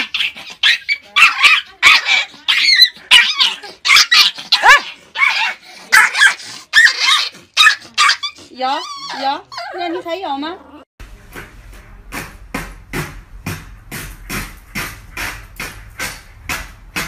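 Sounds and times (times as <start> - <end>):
small dog yapping: 0.0 - 9.8.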